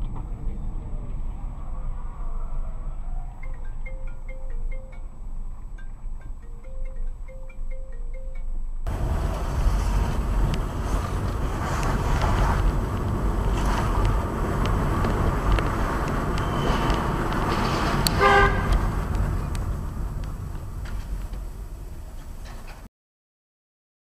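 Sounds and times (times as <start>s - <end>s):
road and engine rumble in car: 8.8s - 22.9s
car horn honk: 16.2s - 20.2s.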